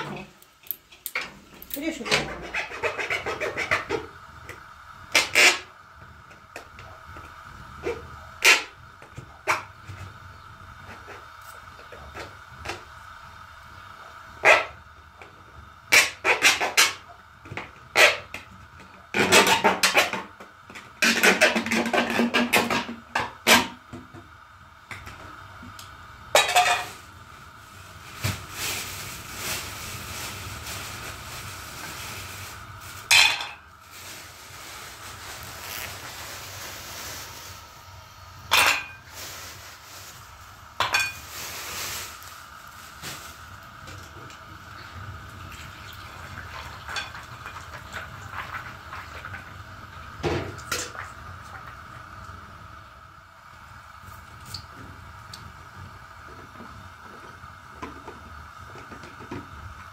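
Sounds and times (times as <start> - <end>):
steady hiss: 24.5 - 47.6
pots and utensils clinking: 26.4 - 27.0, 33.0 - 33.6, 38.5 - 39.1, 40.8 - 41.3.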